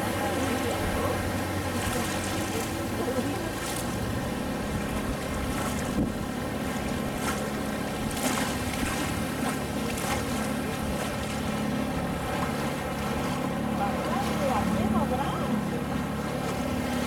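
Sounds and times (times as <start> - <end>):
motorboat engine running: 0.0 - 17.0
water splashing against hull: 0.0 - 17.0
wind on microphone: 3.9 - 9.4.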